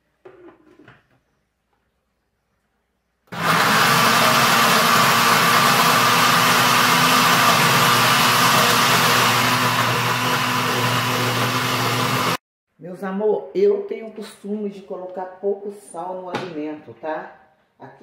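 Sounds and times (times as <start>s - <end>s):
blender whirring: 3.3s - 12.4s.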